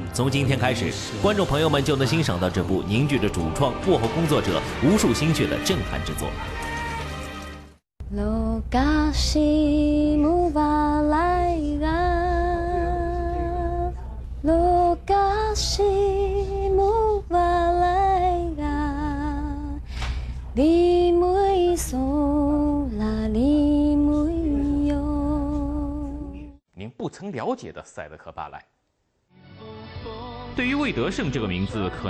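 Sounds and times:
woman singing slow melody: 0:08.0 - 0:19.9, 0:20.6 - 0:26.6.

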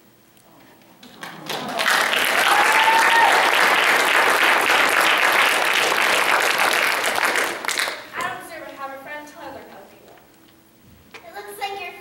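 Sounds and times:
audience applauding: 0:01.0 - 0:08.2
person whooping: 0:01.3 - 0:03.7.

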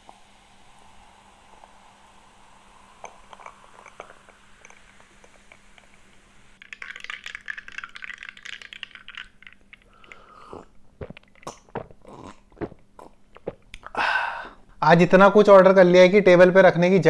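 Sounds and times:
light clicks and clinks: 0:03.0 - 0:06.2.

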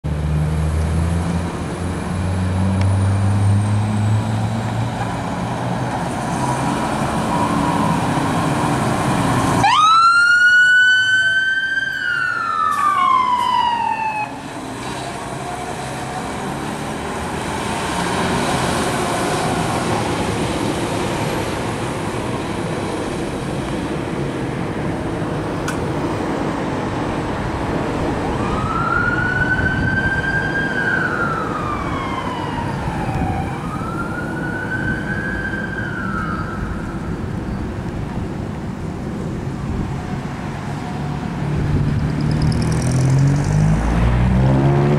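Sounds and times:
fire engine siren wailing: 0:06.5 - 0:20.9, 0:28.2 - 0:37.4.

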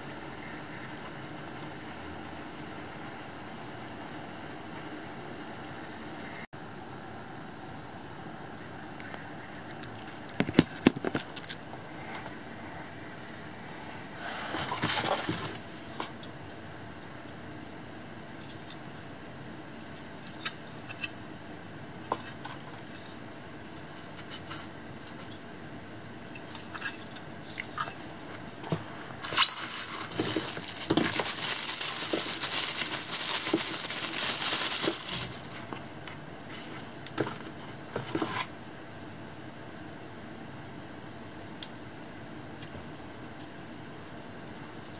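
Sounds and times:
plastic bag crinkling: 0:29.2 - 0:35.7.

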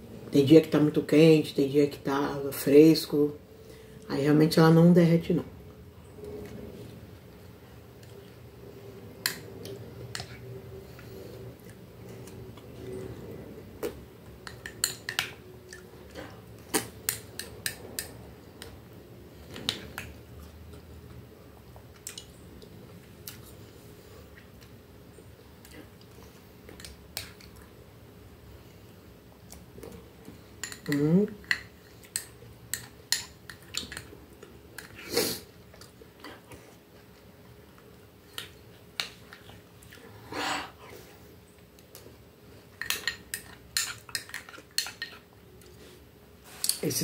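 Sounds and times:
quiet chewing: 0:09.3 - 0:17.8, 0:18.6 - 0:24.8, 0:28.5 - 0:46.8.

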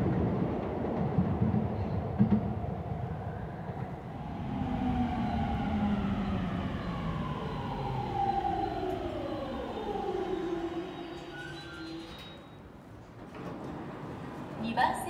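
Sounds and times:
electric train motor whine: 0:04.1 - 0:12.2.

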